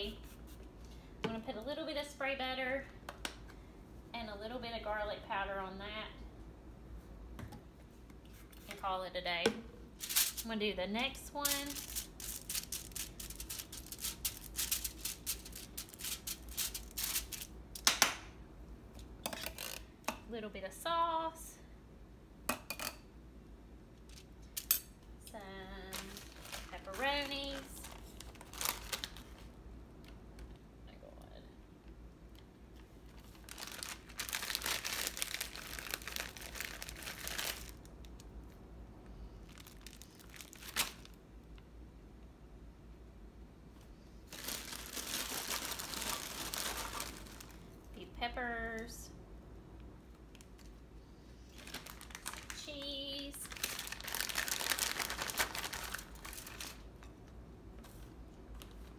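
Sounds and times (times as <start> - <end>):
foil crinkling: 11.4 - 17.5, 25.9 - 29.5, 33.2 - 38.2, 39.4 - 41.2, 44.3 - 47.6, 51.5 - 56.9.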